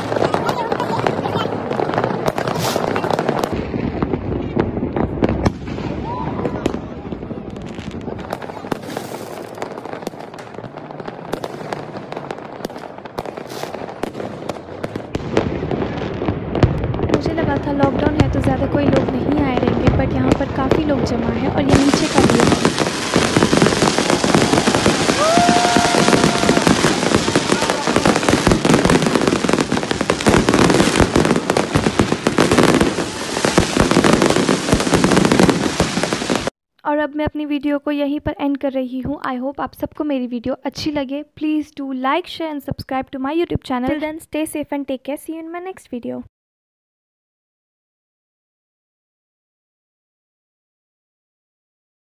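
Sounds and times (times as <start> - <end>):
sharp firework cracks: 0.0 - 36.5
fireworks crackling and banging: 0.0 - 36.6, 42.6 - 44.7.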